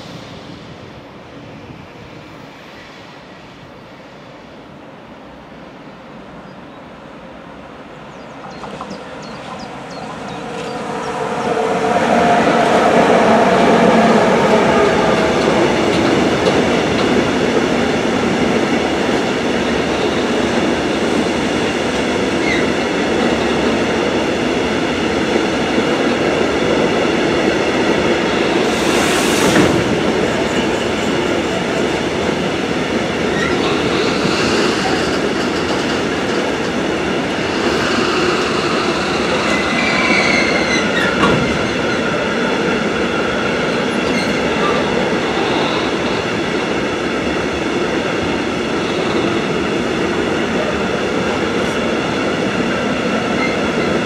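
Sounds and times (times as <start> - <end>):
freight train passing: 0.0 - 54.0
brief hiss: 28.6 - 30.2.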